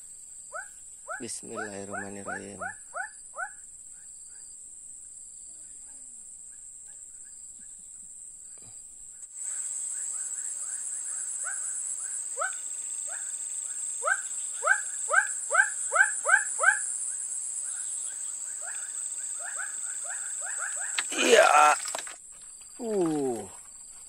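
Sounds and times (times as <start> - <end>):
frog calling: 0.5 - 3.6, 9.9 - 21.8.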